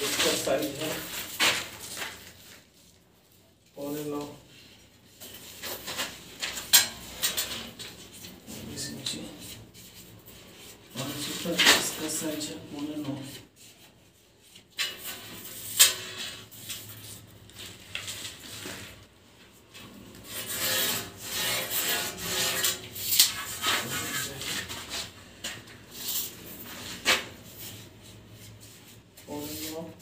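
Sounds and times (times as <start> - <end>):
marking tool scraping along metal: 20.2 - 25.1.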